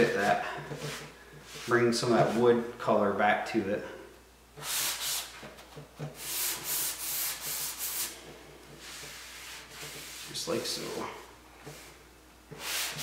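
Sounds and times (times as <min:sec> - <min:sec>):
sanding block scratching wood: 0:04.6 - 0:05.4, 0:06.2 - 0:08.2, 0:08.8 - 0:11.0, 0:12.6 - 0:13.0.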